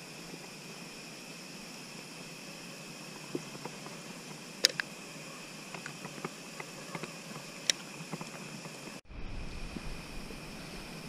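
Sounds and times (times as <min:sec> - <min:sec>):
crickets chirping: 0:00.0 - 0:11.0
sharp clicks: 0:04.6 - 0:05.0, 0:05.7 - 0:09.0.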